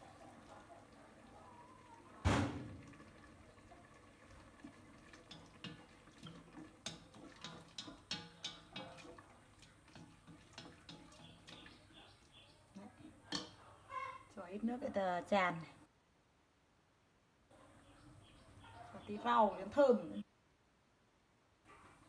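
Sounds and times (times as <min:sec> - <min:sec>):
sharp thump: 0:02.2 - 0:02.8
chopsticks knocking on metal pot: 0:05.3 - 0:09.2, 0:13.3 - 0:13.6.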